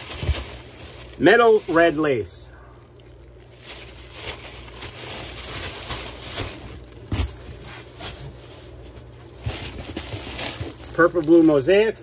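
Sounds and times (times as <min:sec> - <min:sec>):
plastic bags crinkling: 0:00.0 - 0:11.9.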